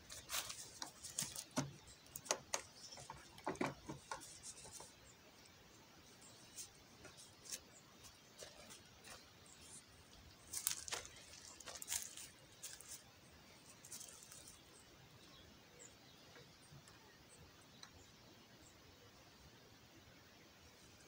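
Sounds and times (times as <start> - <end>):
cloth rustling against camera: 0.0 - 2.2, 6.2 - 13.0.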